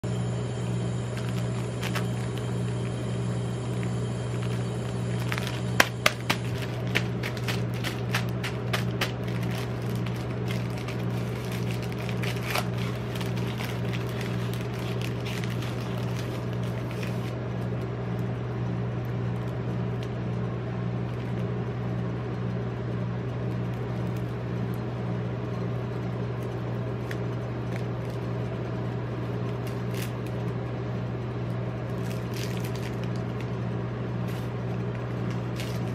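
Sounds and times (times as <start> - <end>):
refrigeration unit hum: 0.0 - 35.9
bag tearing open: 1.1 - 2.5, 4.4 - 17.4, 32.0 - 33.4, 34.3 - 35.9
plastic wrappers crinkling: 1.1 - 2.5, 4.3 - 17.4, 27.0 - 28.3, 29.4 - 30.5, 31.9 - 33.6, 34.2 - 35.9.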